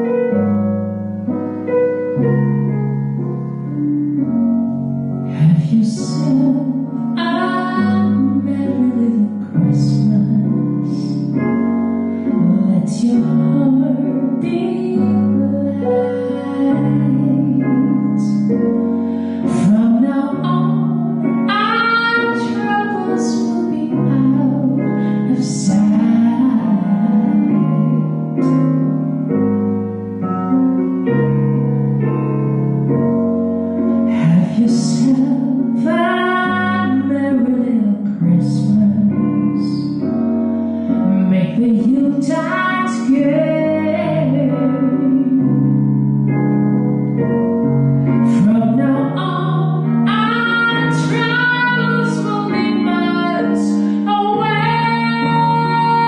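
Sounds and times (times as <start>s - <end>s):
sustained keyboard chords: 0.0s - 56.0s
woman singing into microphone: 5.3s - 11.5s, 12.3s - 28.6s, 34.0s - 40.2s, 40.8s - 45.8s, 48.1s - 56.0s.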